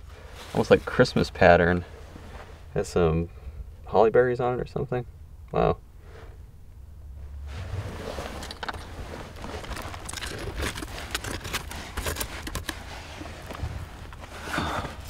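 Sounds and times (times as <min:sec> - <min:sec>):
hand tool scraping soil: 0:07.6 - 0:15.0.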